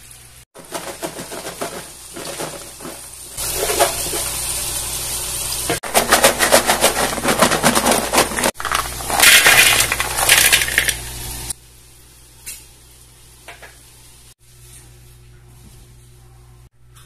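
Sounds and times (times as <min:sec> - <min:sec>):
fries rattling in plastic container: 0:00.6 - 0:04.2, 0:05.8 - 0:11.0.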